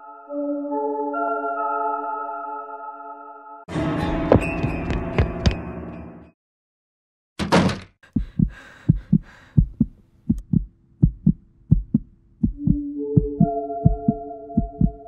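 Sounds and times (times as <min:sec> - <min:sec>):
heartbeat thumps: 0:08.0 - 0:15.0.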